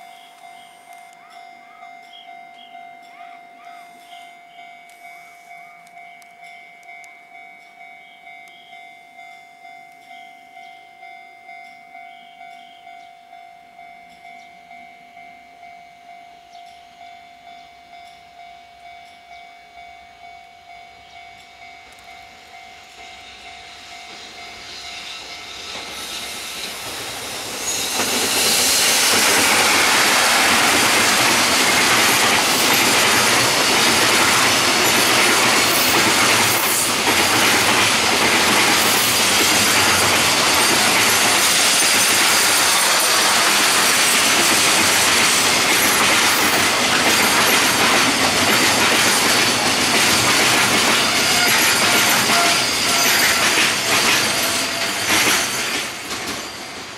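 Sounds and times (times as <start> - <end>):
electric locomotive passing: 0.0 - 56.9
train wheels clattering on rails: 21.2 - 56.9.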